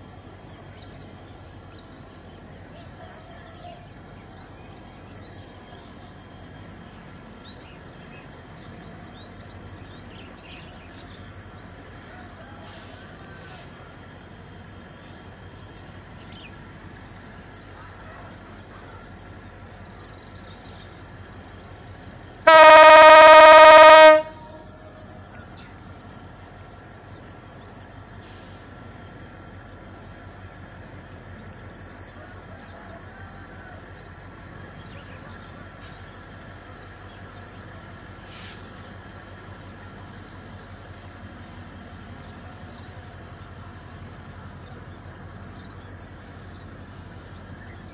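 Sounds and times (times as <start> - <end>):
insects chirring: 0.0 - 47.9
locomotive horn blast: 22.5 - 25.0.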